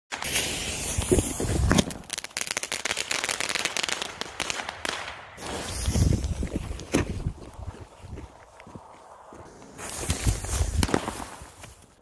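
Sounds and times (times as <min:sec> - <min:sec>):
firework fountain hissing: 0:00.1 - 0:04.0, 0:05.4 - 0:06.4.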